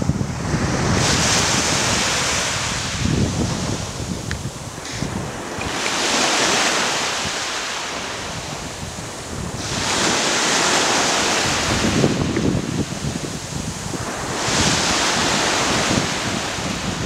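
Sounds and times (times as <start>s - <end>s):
sea waves washing on shore: 0.0s - 17.0s
wind rumble on microphone: 0.0s - 17.0s.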